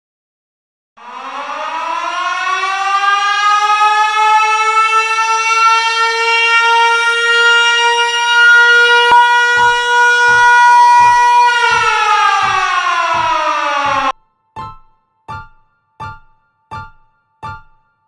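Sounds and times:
siren wailing: 0:01.0 - 0:14.2
deep bass beat: 0:09.0 - 0:17.8.

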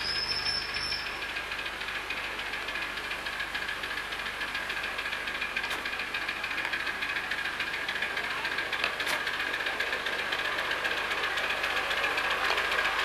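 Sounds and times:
miniature locomotive running on track: 0:00.0 - 0:13.0.

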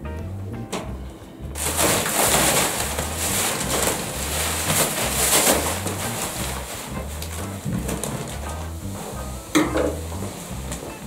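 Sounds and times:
low repeating bass notes: 0:00.0 - 0:11.0
plastic wrapping crinkling: 0:01.6 - 0:09.2.

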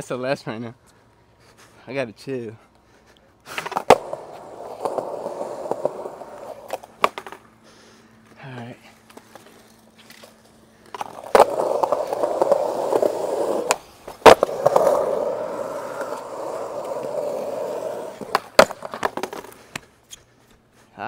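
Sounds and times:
skateboard wheels rolling on concrete: 0:02.2 - 0:21.0
skateboard landing clack: 0:03.6 - 0:07.5, 0:10.9 - 0:19.6.

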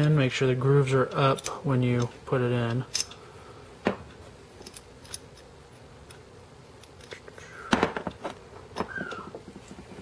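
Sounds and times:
metal pistol parts clicking: 0:04.6 - 0:06.2.

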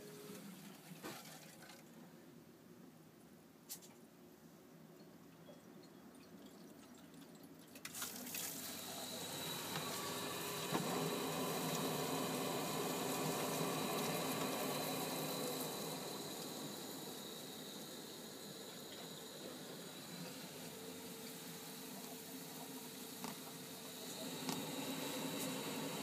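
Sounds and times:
gas boiler rushing hiss: 0:08.5 - 0:26.0.

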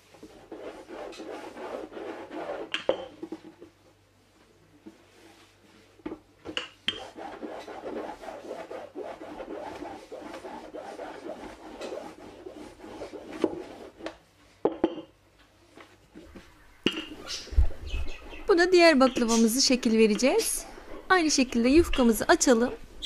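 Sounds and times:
rolling pin rubbing on dough: 0:00.0 - 0:03.7, 0:06.9 - 0:14.2.

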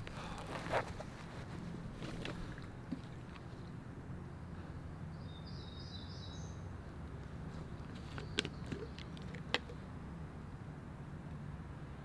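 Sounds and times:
songbird call: 0:05.1 - 0:06.7.

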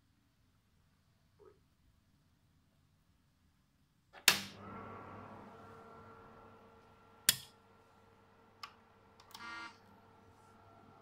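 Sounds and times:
fan and power supply hum: 0:04.3 - 0:11.0
steady electronic tones: 0:04.6 - 0:11.0
power switch clicks: 0:07.2 - 0:07.5.

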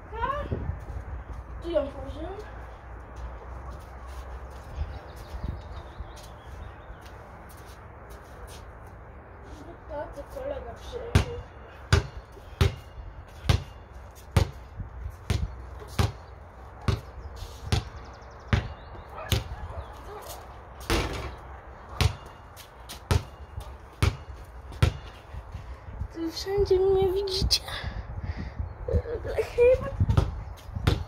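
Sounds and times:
basketball bouncing: 0:11.1 - 0:13.7, 0:14.4 - 0:14.6, 0:15.3 - 0:16.2, 0:16.8 - 0:17.1, 0:18.5 - 0:19.5, 0:22.0 - 0:25.2, 0:30.1 - 0:31.0.

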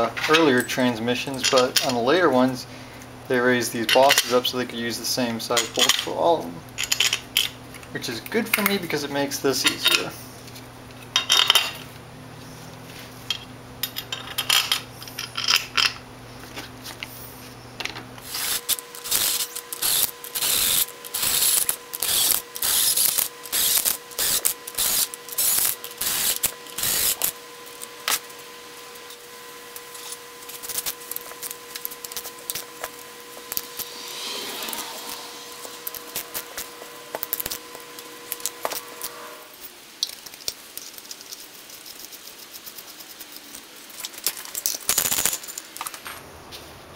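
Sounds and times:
cordless drill bursts: 0:18.2 - 0:27.3.

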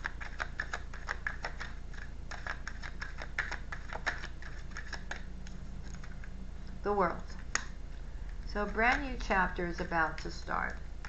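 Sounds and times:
cards being shuffled: 0:00.0 - 0:06.4.

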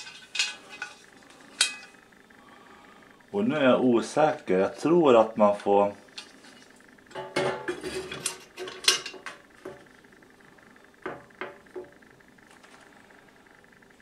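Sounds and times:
grill plate clattering: 0:00.0 - 0:02.0, 0:07.1 - 0:09.8
grill plate tapping: 0:07.1 - 0:09.9, 0:11.0 - 0:12.0.

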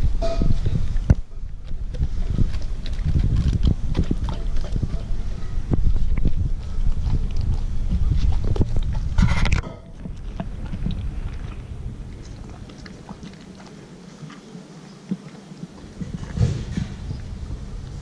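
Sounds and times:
dog chewing wet smacks: 0:01.0 - 0:18.0.

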